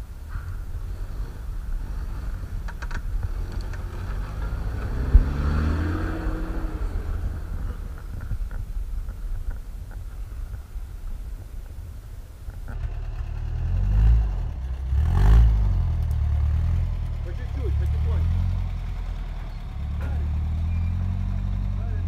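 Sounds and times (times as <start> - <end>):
truck engine driving through snow: 0.0 - 22.0.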